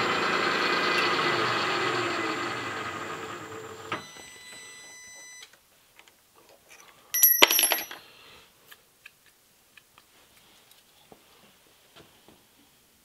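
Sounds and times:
drill motor whine running down: 0.0s - 4.0s
metallic clatter with ringing: 7.2s - 8.0s.

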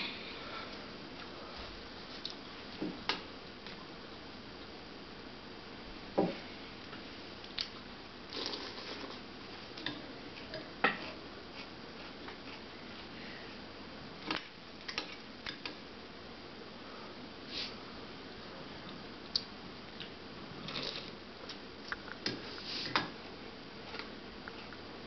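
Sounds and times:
chewing cereal: 7.6s - 9.2s.

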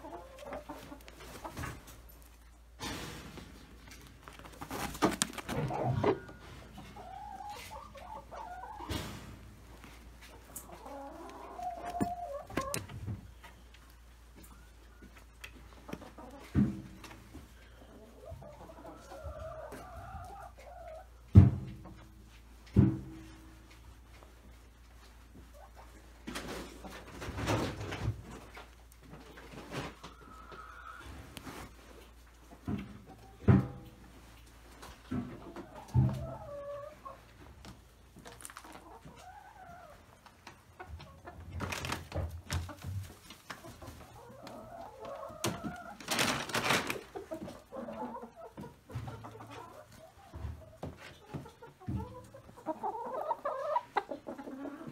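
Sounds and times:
chicken clucking: 0.0s - 2.8s, 3.5s - 54.9s
rustling noise: 0.6s - 7.8s, 31.0s - 33.2s, 45.8s - 47.6s.

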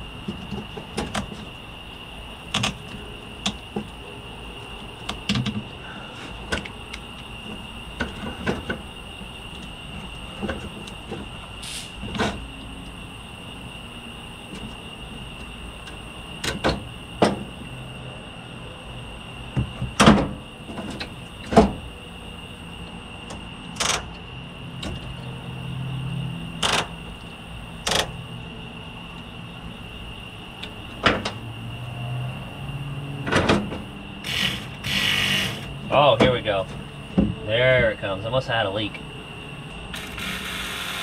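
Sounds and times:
clicks and knocks on hose fittings: 5.0s - 5.7s, 6.5s - 8.8s
steady high-pitched whine: 33.4s - 41.0s.

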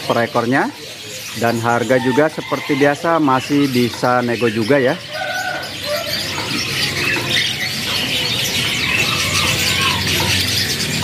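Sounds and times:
canaries chirping: 0.0s - 11.0s.

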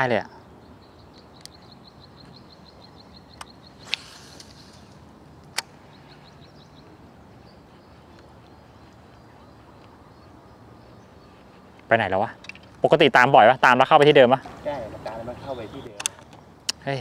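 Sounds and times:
sharp clicks: 3.3s - 5.8s, 16.0s - 16.8s
brief hiss: 3.8s - 5.0s.

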